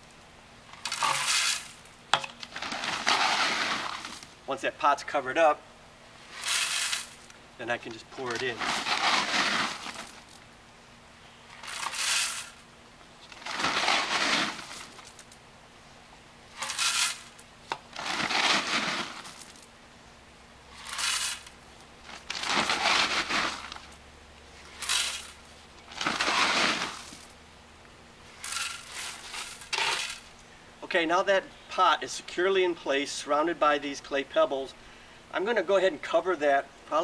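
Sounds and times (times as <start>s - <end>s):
clay pebbles rattling into pot: 20.8s - 21.5s, 24.7s - 27.3s, 28.4s - 30.3s.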